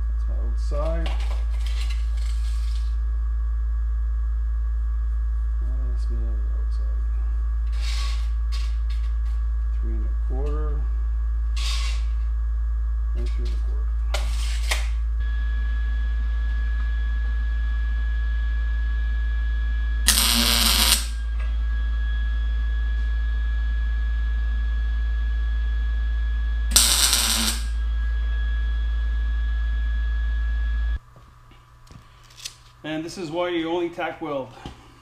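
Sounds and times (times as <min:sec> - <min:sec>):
low electrical hum: 0:00.0 - 0:35.0
welding arc crackling: 0:20.1 - 0:21.2, 0:26.7 - 0:27.8.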